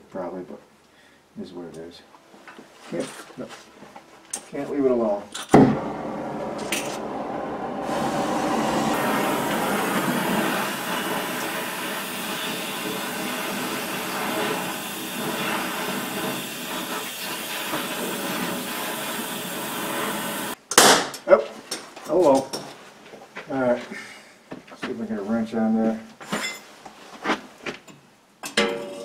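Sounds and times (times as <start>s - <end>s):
gas torch hissing: 5.5s - 20.6s.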